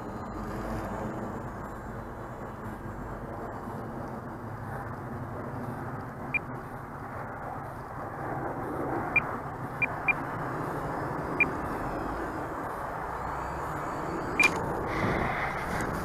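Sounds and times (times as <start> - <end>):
steady rushing noise: 0.0 - 16.0
high electronic beeps: 13.0 - 14.6.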